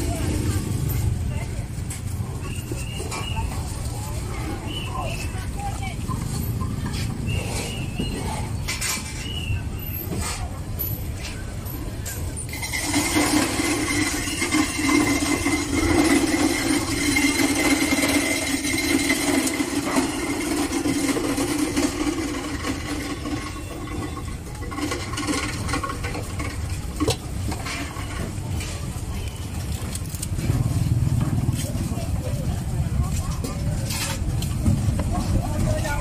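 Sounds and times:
street noise: 0.0s - 36.0s
small engine running: 12.5s - 26.4s.

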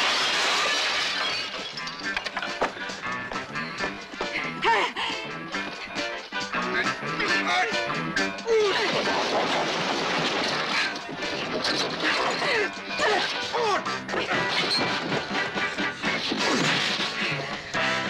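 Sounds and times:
furniture crashing: 0.0s - 2.0s, 8.8s - 12.4s
energetic film score: 1.5s - 18.0s.

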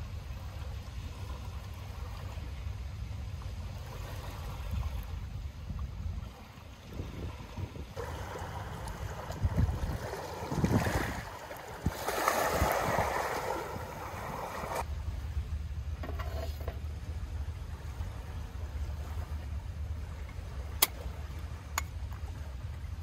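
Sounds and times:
wind rumble on microphone: 0.0s - 23.0s
waves washing over pebbles: 6.9s - 14.9s.

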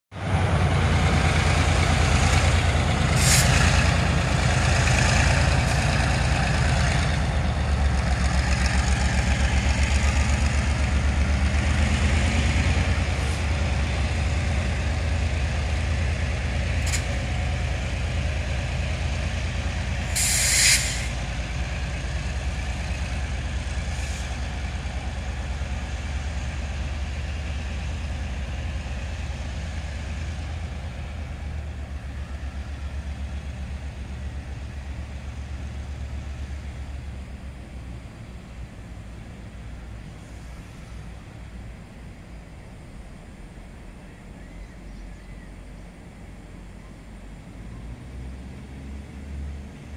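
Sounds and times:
locomotive engine throbbing: 0.1s - 49.9s
air-brake hiss: 3.1s - 3.6s, 20.0s - 21.2s, 23.8s - 24.4s, 40.1s - 41.2s
short air hisses: 3.1s - 3.6s, 20.1s - 21.2s, 23.9s - 24.4s.

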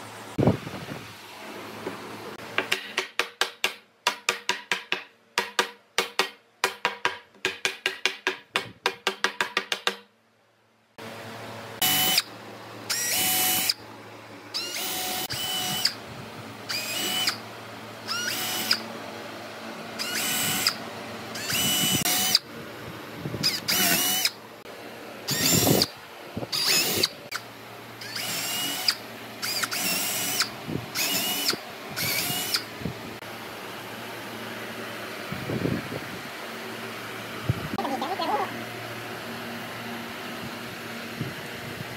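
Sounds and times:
power drill boring into wood: 11.8s - 12.3s, 12.9s - 13.8s, 14.6s - 16.0s, 16.7s - 17.4s, 18.1s - 18.9s, 20.0s - 20.8s, 21.4s - 22.4s, 23.4s - 24.4s, 25.3s - 25.9s, 26.5s - 27.1s, 28.0s - 32.7s.

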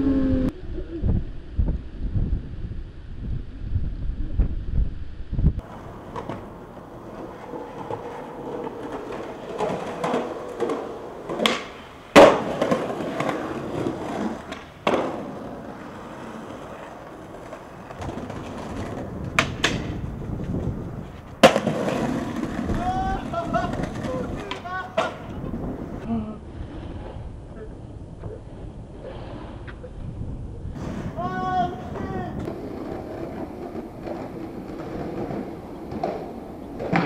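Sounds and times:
skateboard wheels rolling on concrete: 0.0s - 37.0s
skateboard clacking on pavement: 5.6s - 25.7s, 31.6s - 37.0s.

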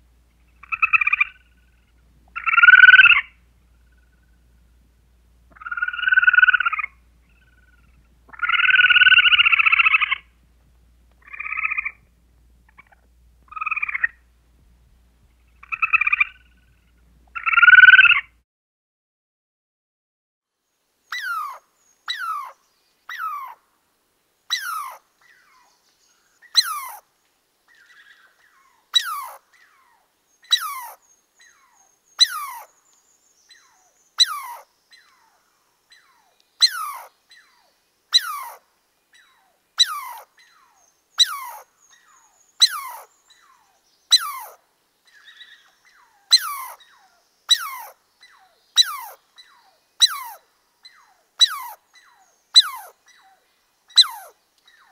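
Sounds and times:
animal high-pitched call: 24.5s - 25.0s, 26.6s - 27.0s, 29.0s - 29.4s, 30.5s - 31.0s, 32.2s - 32.7s, 34.2s - 34.7s, 36.6s - 37.1s, 38.2s - 38.6s, 39.8s - 40.3s, 41.2s - 41.7s, 42.6s - 43.1s, 44.1s - 44.6s, 46.3s - 46.8s, 47.5s - 49.2s, 50.0s - 50.4s, 51.0s - 53.0s, 54.0s - 54.4s.

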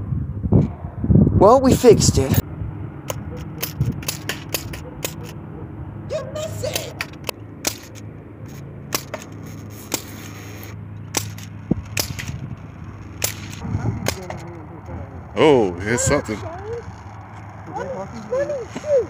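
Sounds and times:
air rifle shots cracking: 3.0s - 5.4s, 8.8s - 10.4s, 11.1s - 14.4s.

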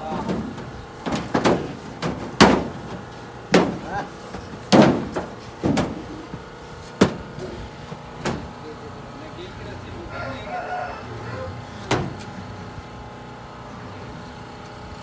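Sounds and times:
bangs against metal gates: 0.0s - 4.1s, 4.7s - 6.1s, 8.2s - 8.6s.

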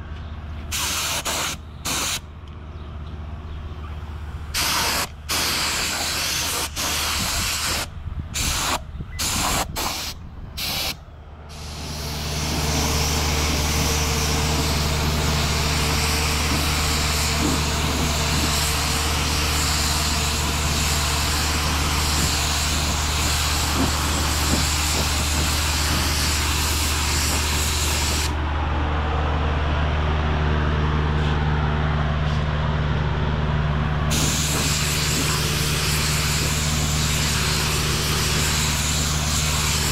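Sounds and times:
low machine hum: 0.0s - 39.9s
spray gun hissing: 0.7s - 2.2s, 4.6s - 28.4s, 34.1s - 39.9s.

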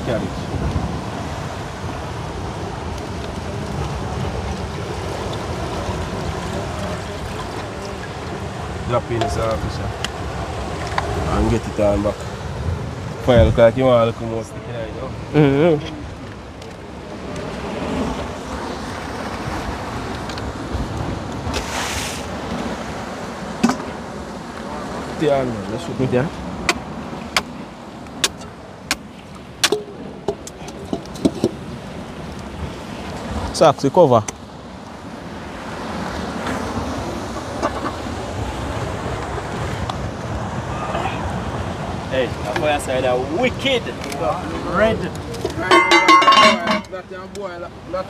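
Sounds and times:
wind on microphone: 0.0s - 24.8s
sea washing against rocks: 0.0s - 46.9s
surf: 0.0s - 48.0s.

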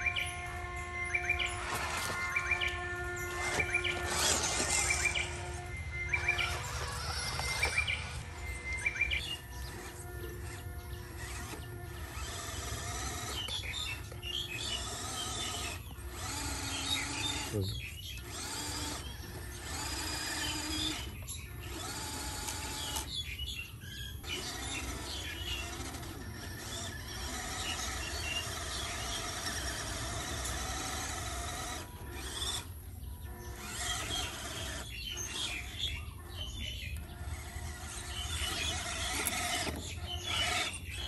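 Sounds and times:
tyres scraping in sand: 0.0s - 23.5s
small electric motor whining: 0.0s - 41.0s.

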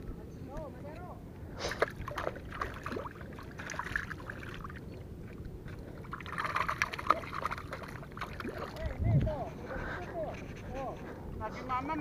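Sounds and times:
fish splashing in water: 1.6s - 4.8s, 5.8s - 8.8s.

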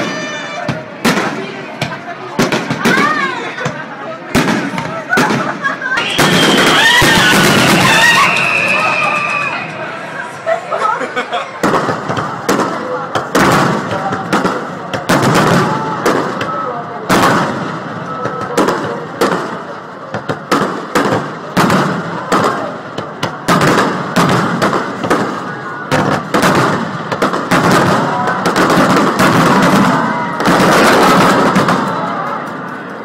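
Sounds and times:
fireworks shells bursting: 6.0s - 9.9s.

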